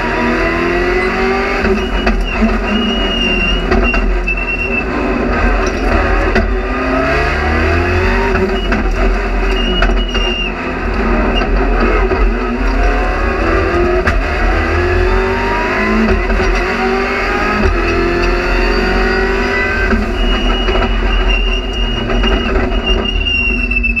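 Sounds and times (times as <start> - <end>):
car engine accelerating: 0.0 - 24.0.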